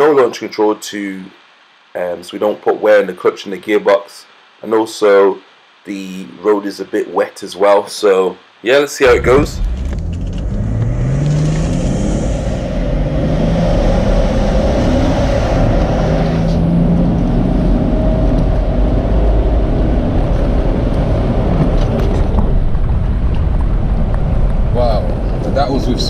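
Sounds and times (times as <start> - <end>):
car engine accelerating hard: 9.0 - 23.4.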